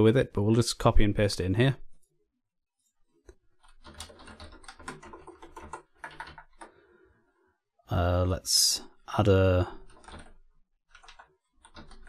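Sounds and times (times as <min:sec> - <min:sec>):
computer keyboard typing: 0:03.6 - 0:06.9, 0:09.6 - 0:12.0.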